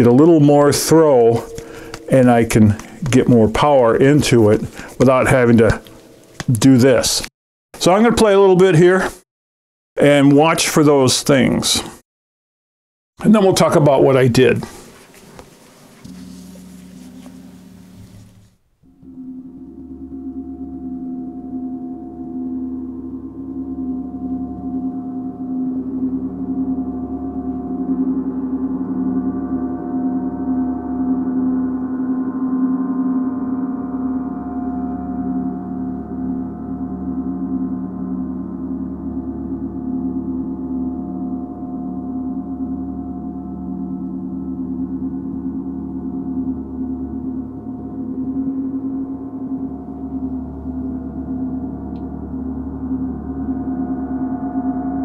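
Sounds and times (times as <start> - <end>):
gong struck with mallet: 0.0 - 4.8.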